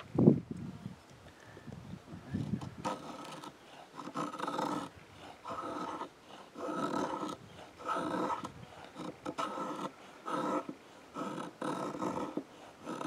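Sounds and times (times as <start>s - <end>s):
creak of blade on wood: 2.4s - 13.0s
knife scraping wood: 2.4s - 13.0s.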